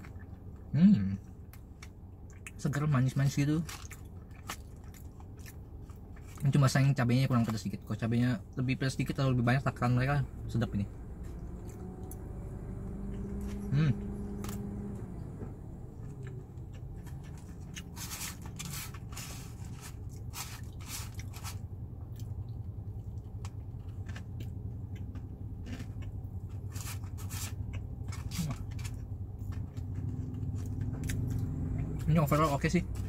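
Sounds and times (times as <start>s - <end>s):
low cabin hum: 0.0s - 33.0s
crunchy chewing: 3.4s - 6.7s, 15.9s - 33.0s.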